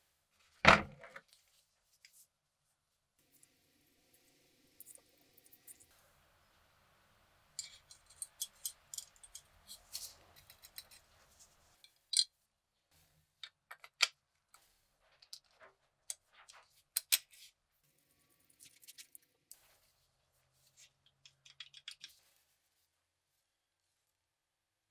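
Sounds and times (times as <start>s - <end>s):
small metal parts clicking: 7.6s - 11.0s, 21.0s - 22.2s.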